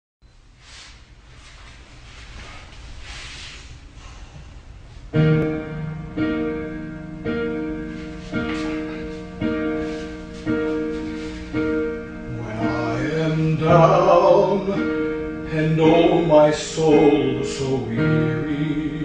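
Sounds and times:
piano chords ringing: 5.0 - 19.0
person singing: 12.3 - 19.0.

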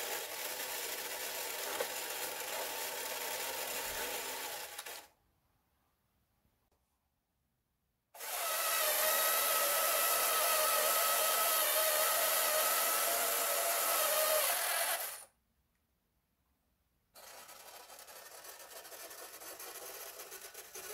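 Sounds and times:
toy electric motor whirring: 0.0 - 5.1, 8.2 - 15.3, 17.2 - 20.9.

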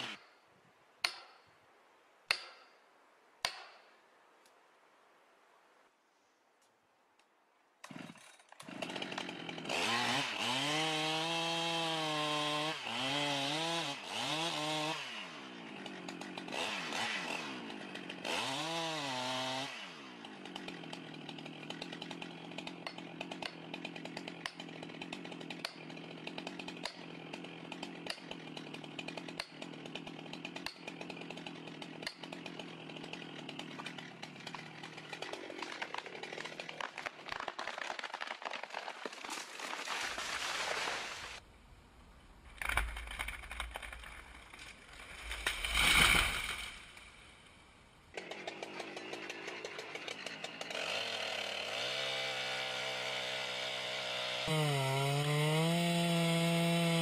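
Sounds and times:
chainsaw revving and idling: 0.0 - 0.2, 7.9 - 37.1, 48.1 - 57.0.

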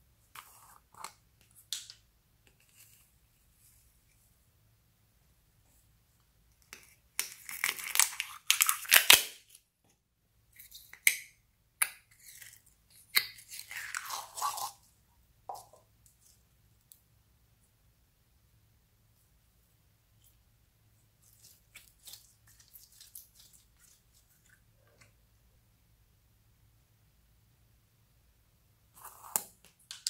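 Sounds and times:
slime squelching and crackling: 21.2 - 24.6.

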